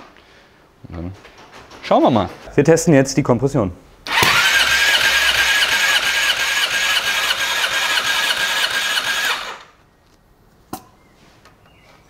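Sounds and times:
starter motor whining: 4.1s - 9.8s.

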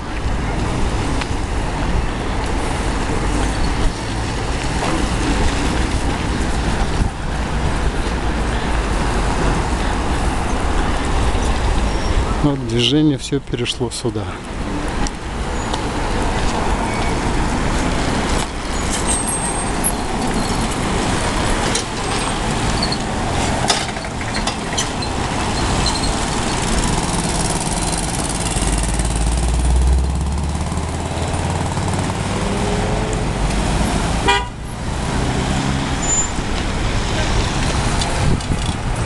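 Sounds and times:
cars driving past: 0.0s - 39.0s
heavy engine rumble: 14.1s - 39.0s.

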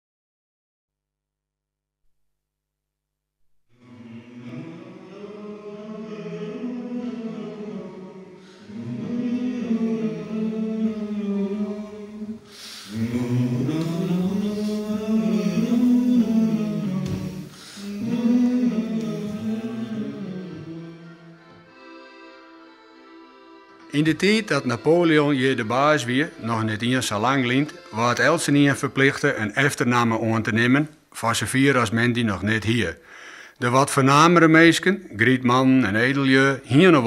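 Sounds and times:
men singing unaccompanied: 3.8s - 21.4s.

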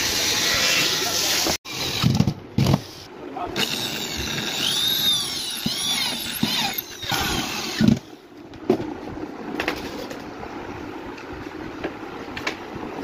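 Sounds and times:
electric drill whining: 3.6s - 8.0s.

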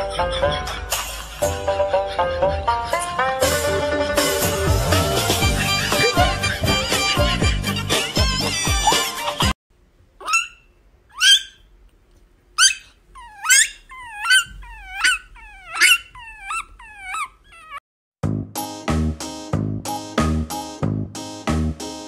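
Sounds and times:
background music: 0.0s - 9.5s, 18.3s - 22.0s
puppy whimpering yips: 10.2s - 11.7s, 12.6s - 17.8s.

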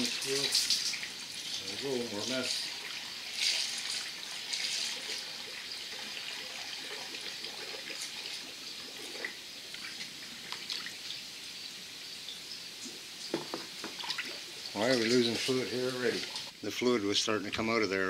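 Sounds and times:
liquid trickling into funnel: 0.0s - 11.2s.

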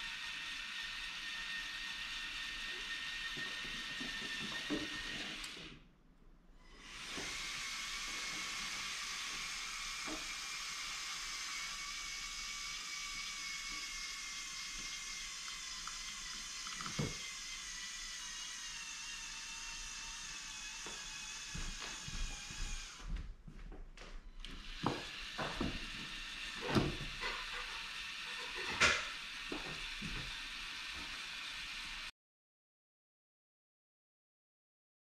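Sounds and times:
electric motors whirring: 0.0s - 5.8s, 6.6s - 23.2s, 24.4s - 32.1s.

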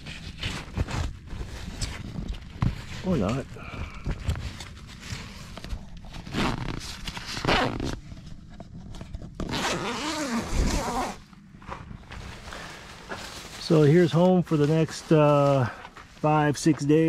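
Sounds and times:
tent zipper rasping: 6.2s - 8.1s, 9.4s - 11.3s.

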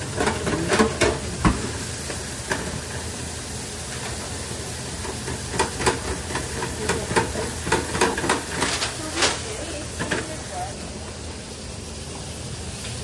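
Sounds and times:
deep fryer sizzling: 0.0s - 13.0s.

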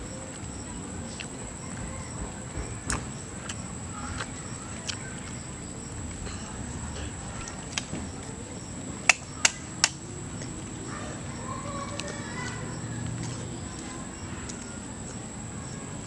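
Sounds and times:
steady high-pitched whine: 0.0s - 16.0s.

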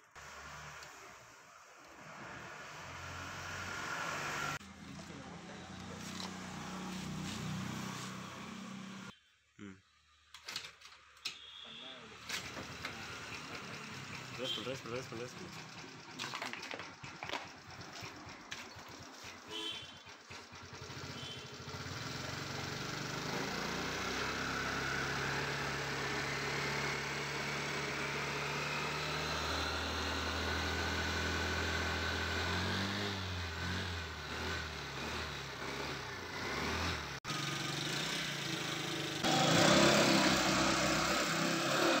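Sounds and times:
scooter engine idling: 12.6s - 23.9s
loud rough noise: 35.6s - 42.0s.

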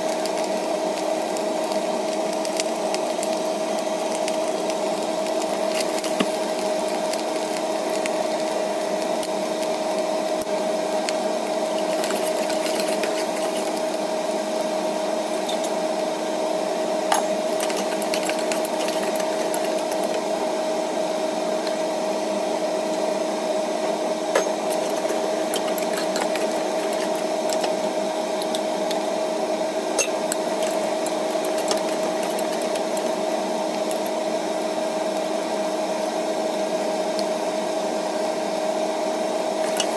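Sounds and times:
steady hum: 3.3s - 36.4s
metal spatula scraping clay pot: 11.8s - 13.9s, 17.1s - 20.3s, 24.4s - 27.8s, 30.0s - 33.1s.

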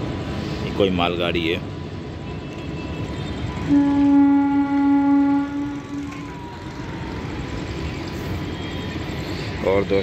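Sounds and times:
goods train rumbling past: 3.4s - 10.0s
train horn blast: 3.6s - 6.3s.

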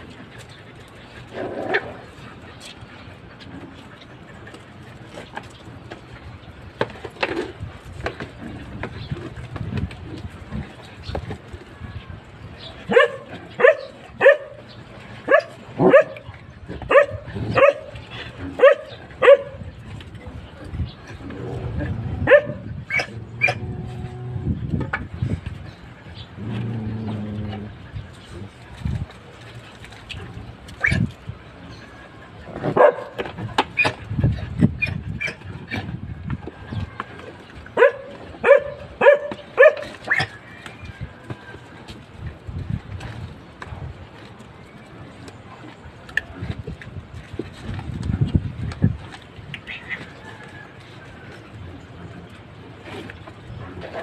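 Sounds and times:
dog barking: 12.9s - 14.6s, 15.3s - 16.2s, 16.9s - 17.9s, 18.6s - 19.6s, 22.2s - 23.6s, 32.8s - 33.2s, 37.8s - 39.9s.

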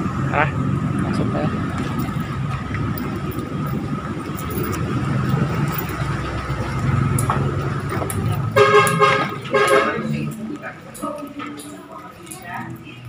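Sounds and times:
low background rumble: 0.0s - 11.3s
horn honk: 8.4s - 10.4s.

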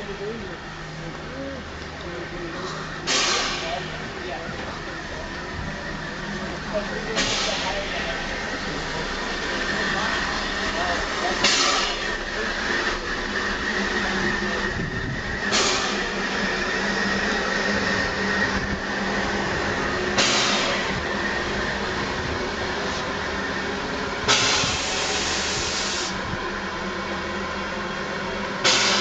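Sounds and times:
steam locomotive hissing: 0.0s - 29.0s
bursts of escaping steam: 9.3s - 21.5s, 24.2s - 26.2s.

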